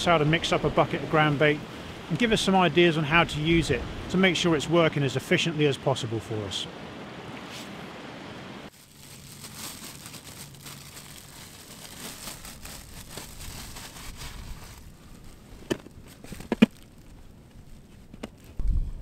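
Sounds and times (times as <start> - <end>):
plastic bag crinkling: 8.7 - 18.5.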